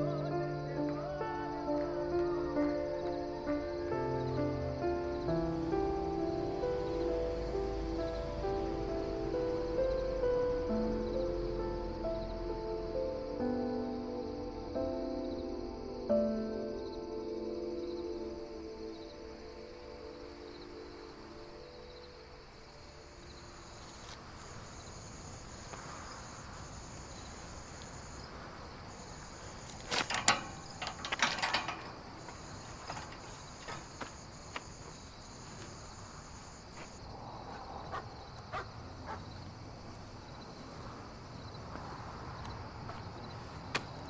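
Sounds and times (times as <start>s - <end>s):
crickets trilling: 0.0s - 44.0s
metal gate clicking and rattling: 29.4s - 34.1s.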